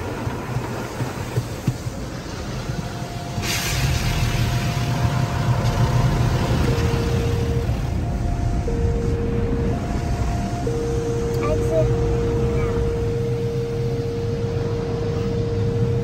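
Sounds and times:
car wash machinery rumble: 0.0s - 16.0s.

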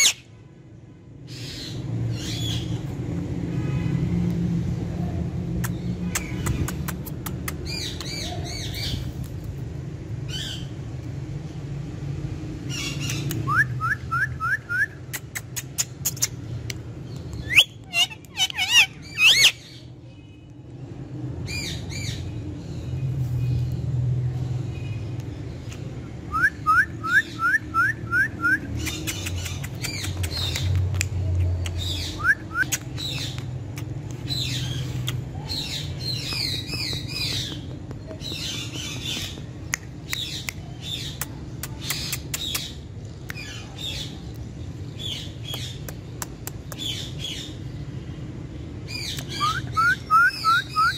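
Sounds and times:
parakeet chirping: 0.0s - 0.2s, 15.7s - 19.8s
parakeet squawking: 0.0s - 0.2s, 17.4s - 19.7s
sharp clicks: 28.8s - 31.9s.

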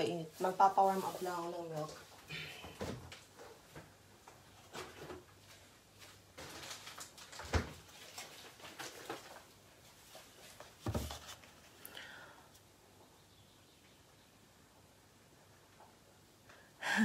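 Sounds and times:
kitchen clatter and rustling: 4.6s - 11.3s.

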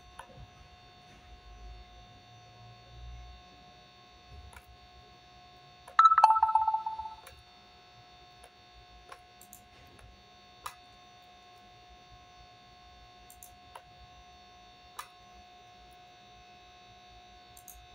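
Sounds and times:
two-note chime: 6.0s - 7.2s.

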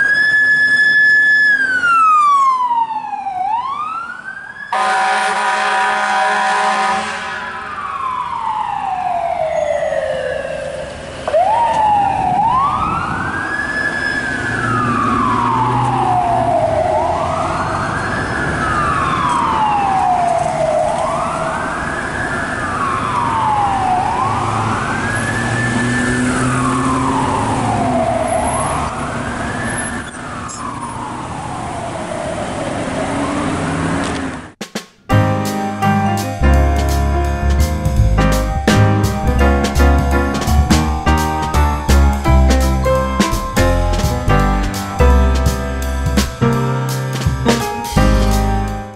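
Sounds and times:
ambulance siren wailing: 0.0s - 34.0s, 35.8s - 48.9s
horn blast: 4.8s - 7.8s, 35.1s - 48.8s.

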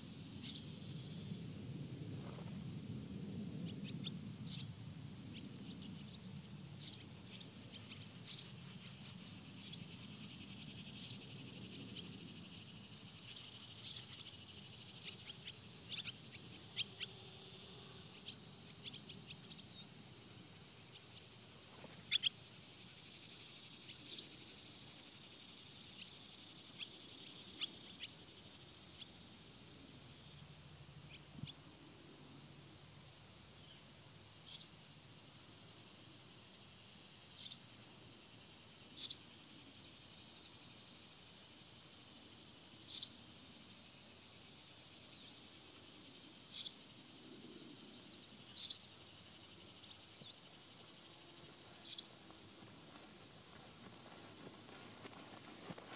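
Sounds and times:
swallows chirping: 6.8s - 17.1s, 46.5s - 46.8s, 48.4s - 52.4s.

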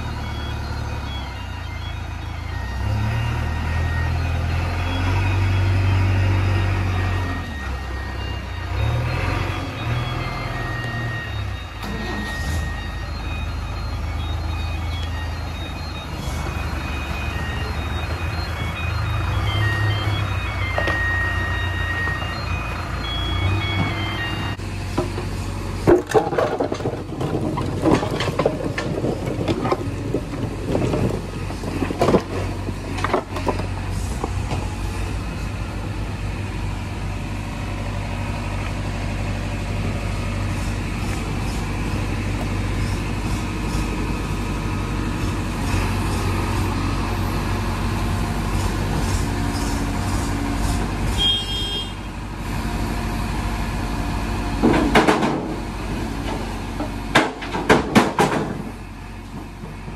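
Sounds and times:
high-pitched tone: 0.0s - 24.6s
heavy diesel engine running: 0.0s - 59.9s
rock and metal knocks and clanks: 54.6s - 55.6s, 57.1s - 58.7s.

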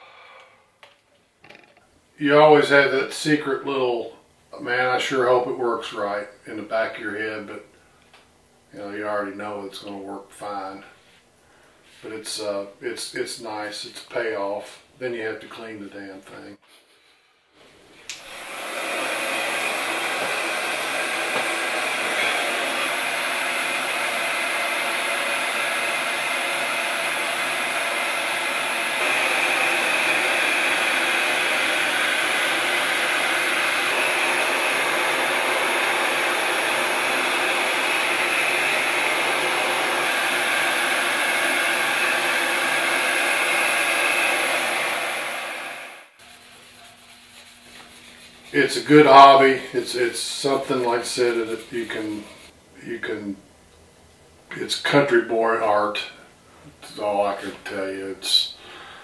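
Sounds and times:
heat gun blowing air: 18.1s - 52.6s.

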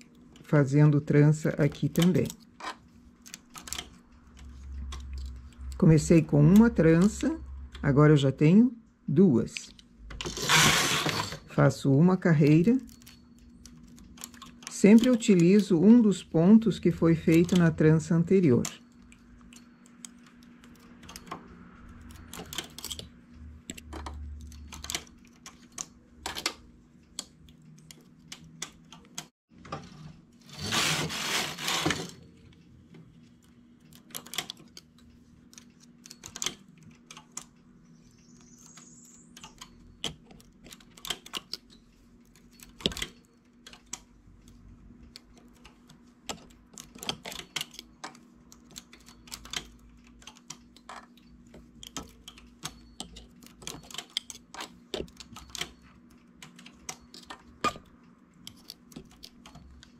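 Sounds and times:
knitting carriage clatter: 12.3s - 38.7s, 39.4s - 59.9s.

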